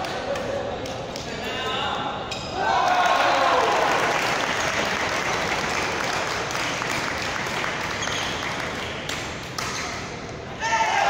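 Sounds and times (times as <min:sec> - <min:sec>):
spectators clapping in sports hall: 0:02.7 - 0:09.6.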